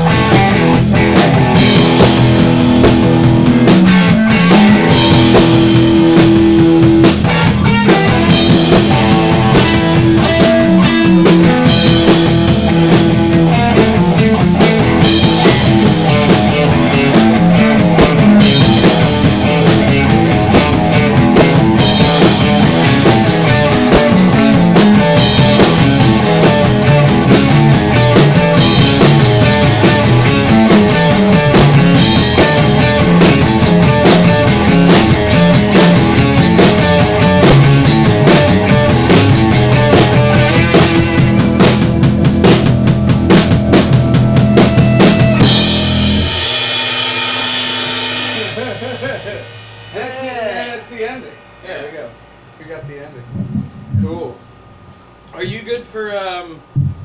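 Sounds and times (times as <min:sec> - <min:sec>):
rock band playing loudly: 0:00.0 - 0:52.5.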